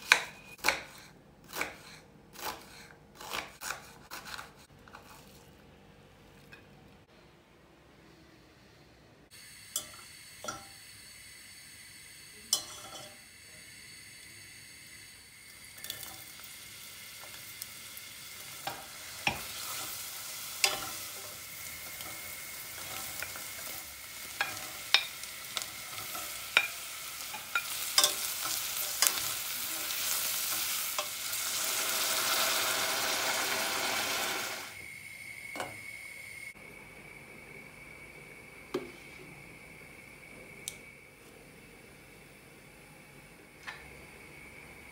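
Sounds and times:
vegetables sizzling in oil: 0:09.4 - 0:36.4
utensils clicking against a pot: 0:24.4 - 0:29.3.

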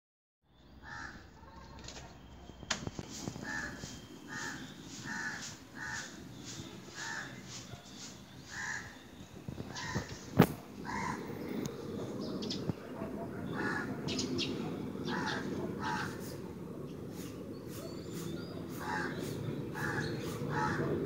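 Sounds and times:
crows cawing: 0:00.8 - 0:01.6, 0:03.4 - 0:06.2, 0:06.9 - 0:07.5, 0:08.5 - 0:09.0, 0:09.7 - 0:11.4, 0:13.4 - 0:14.2, 0:15.0 - 0:16.4, 0:18.7 - 0:21.0.

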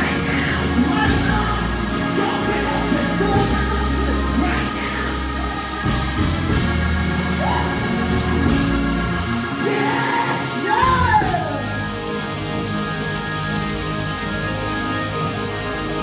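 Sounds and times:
men singing into microphones: 0:00.0 - 0:06.7, 0:09.6 - 0:11.8
held instrumental chords: 0:00.0 - 0:16.0.

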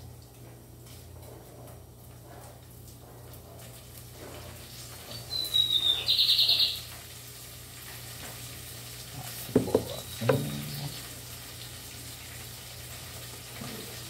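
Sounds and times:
bird whistling and trilling: 0:05.1 - 0:06.8, 0:09.9 - 0:10.9
sharp knocks: 0:09.5 - 0:10.6.

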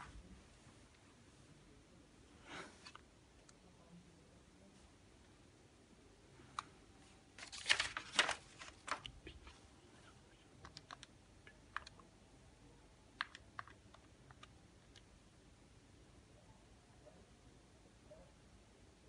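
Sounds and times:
paper shuffling: 0:07.4 - 0:09.6.

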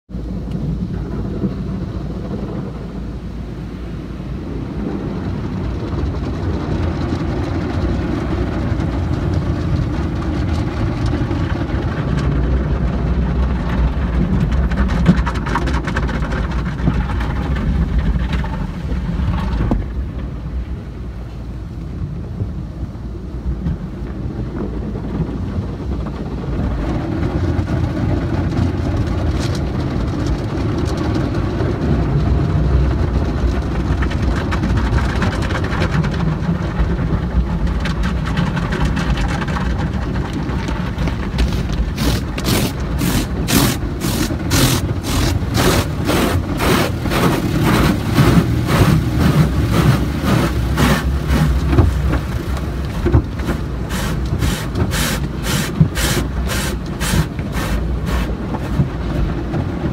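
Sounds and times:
car wash machinery rumble: 0:00.1 - 0:59.9
cloth brushes scrubbing car: 0:41.4 - 0:52.5, 0:53.2 - 0:59.0.

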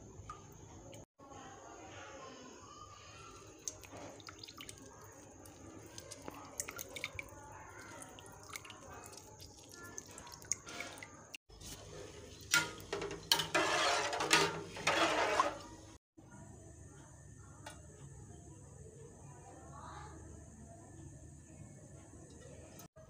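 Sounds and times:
water splashing and sloshing: 0:03.3 - 0:16.0
wooden spoon stirring rice in pot: 0:03.3 - 0:16.0.

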